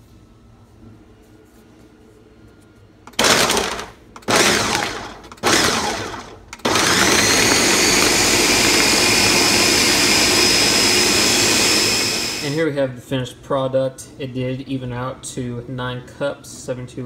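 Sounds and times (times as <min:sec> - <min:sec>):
blender running: 0:03.1 - 0:12.6.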